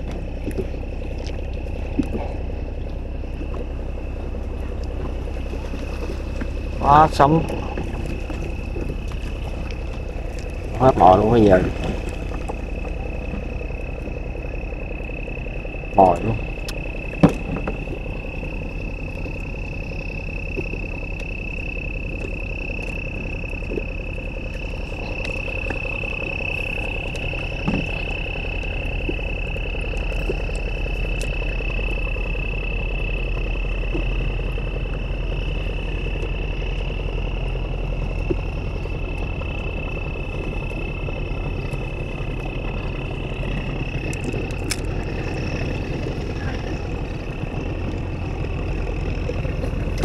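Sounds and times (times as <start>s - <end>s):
boat engine idling: 0.0s - 50.0s
faint clicks: 42.7s - 50.0s.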